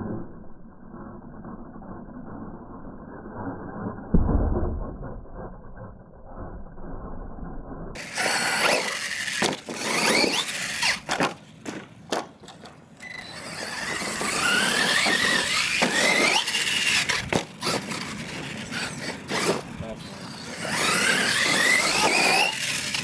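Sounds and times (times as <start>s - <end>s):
electric motor whining: 8.0s - 11.1s, 13.0s - 23.0s.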